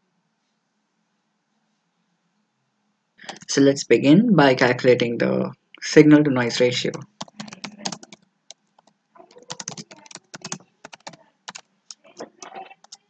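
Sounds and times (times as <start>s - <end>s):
computer keyboard typing clicks: 6.9s - 13.0s.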